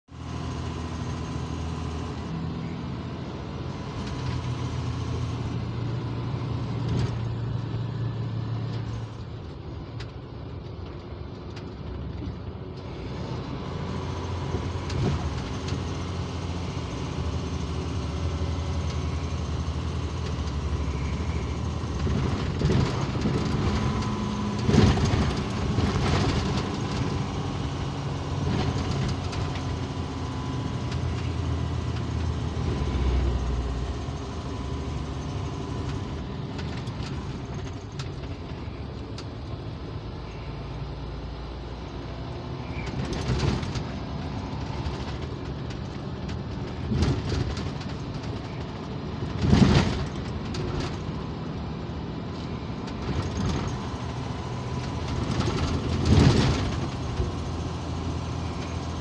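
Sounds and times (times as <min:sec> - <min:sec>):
diesel truck engine running: 0:00.1 - 0:59.0
knocks and rattles: 0:20.2 - 0:27.8, 0:42.8 - 0:51.4, 0:52.8 - 0:59.0.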